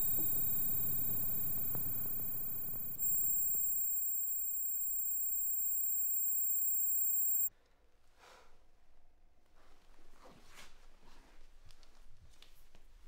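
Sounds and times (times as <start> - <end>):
high-pitched electronic ringing tones: 0.0 - 7.5.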